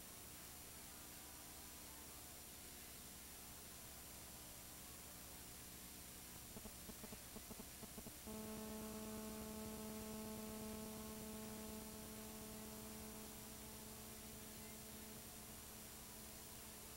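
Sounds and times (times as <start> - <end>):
electrical hum with hiss: 0.0 - 16.9
faint flickering pulses: 6.5 - 16.9.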